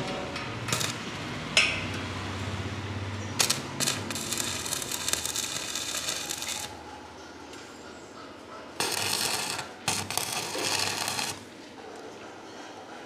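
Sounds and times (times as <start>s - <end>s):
welding arc frying crackle: 0.5s - 1.4s, 3.4s - 6.8s, 8.8s - 11.5s
welding electrode striking crackles: 0.5s - 1.8s, 3.4s - 6.8s, 8.8s - 11.5s.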